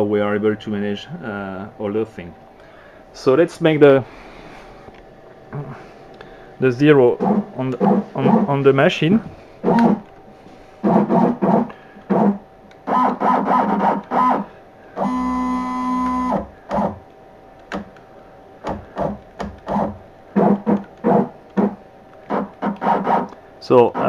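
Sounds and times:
machine motors whining: 0:09.6 - 0:10.1, 0:10.8 - 0:17.0.

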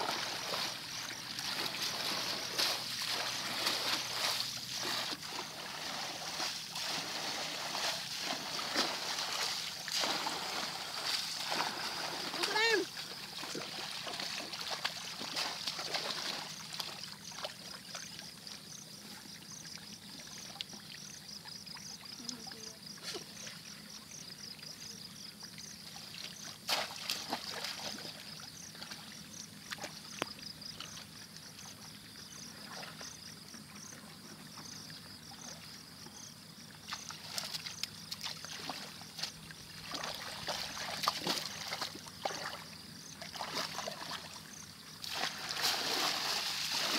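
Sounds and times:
water sloshing and splashing: 0:00.0 - 0:18.6, 0:25.6 - 0:36.0, 0:36.6 - 0:46.9.

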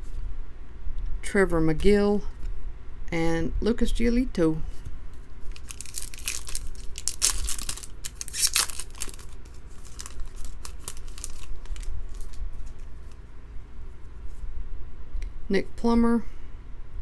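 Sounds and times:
foil wrapper crinkling and tearing: 0:05.5 - 0:13.2.

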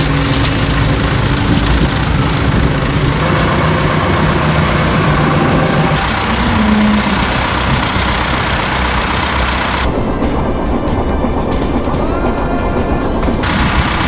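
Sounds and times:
diesel tractor engine running: 0:00.0 - 0:14.0.

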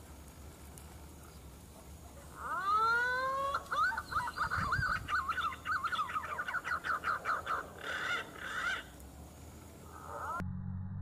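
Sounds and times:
pigeon whistled song: 0:03.7 - 0:07.6.

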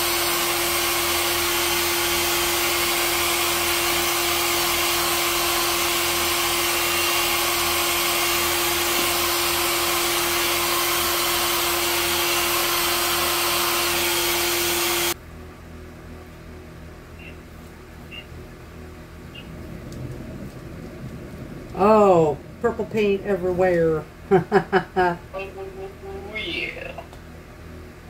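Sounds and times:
hair dryer running: 0:00.0 - 0:15.2, 0:24.3 - 0:25.2.

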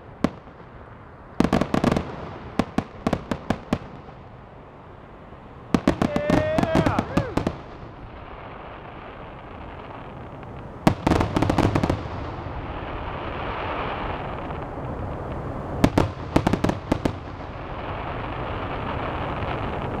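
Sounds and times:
fireworks bangs: 0:00.0 - 0:04.4, 0:05.7 - 0:20.0
steady background hiss: 0:00.0 - 0:20.0
rapid crackling pops: 0:05.8 - 0:07.8.

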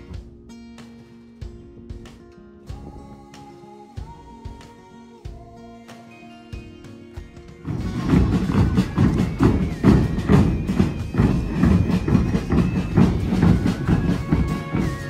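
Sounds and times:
bass drums beating: 0:01.4 - 0:03.3, 0:07.6 - 0:15.0.

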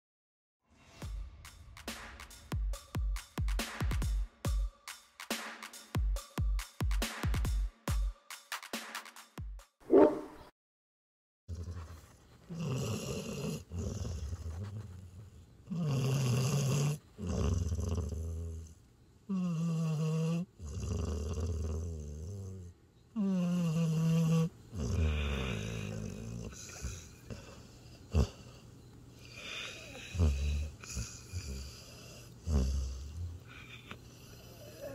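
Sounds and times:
dog snoring: 0:11.5 - 0:34.9.

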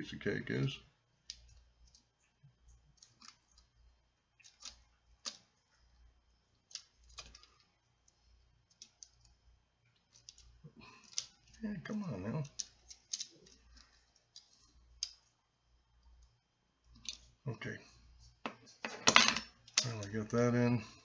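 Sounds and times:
small tool clicking on plastic parts: 0:12.4 - 0:15.3.

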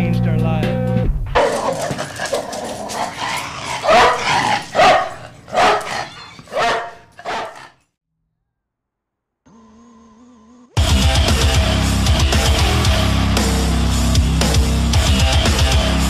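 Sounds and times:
dog barks and yips: 0:01.4 - 0:07.7.

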